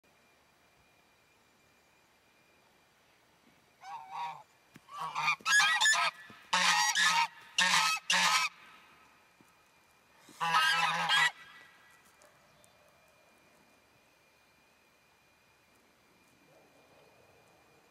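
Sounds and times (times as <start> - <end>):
geese honking: 3.8 - 8.8, 10.2 - 11.9.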